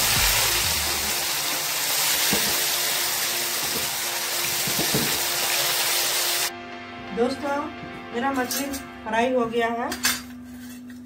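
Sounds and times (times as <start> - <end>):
fish sizzling in hot oil: 0.0 - 6.5.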